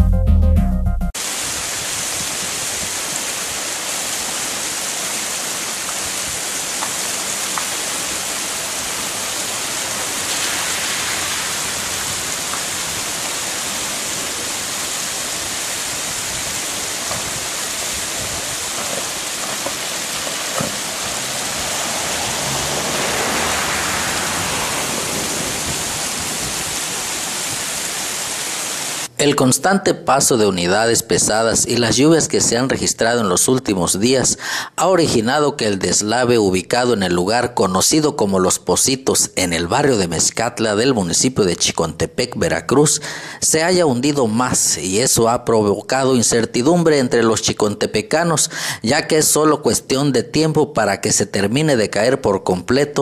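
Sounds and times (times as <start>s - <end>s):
rushing hiss of water: 1.2s - 29.2s, 42.8s - 43.7s, 48.4s - 48.9s.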